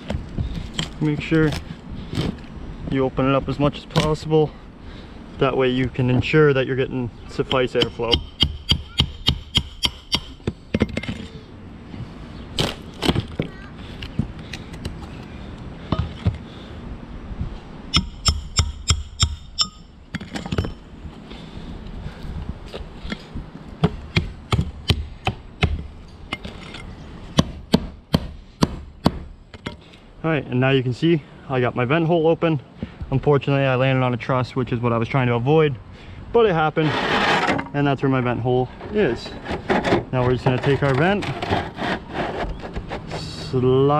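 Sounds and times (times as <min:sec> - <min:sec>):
hatchet chopping wood: 0:07.5 - 0:11.0, 0:12.6 - 0:14.9, 0:17.9 - 0:20.8, 0:23.8 - 0:25.9, 0:27.4 - 0:29.8.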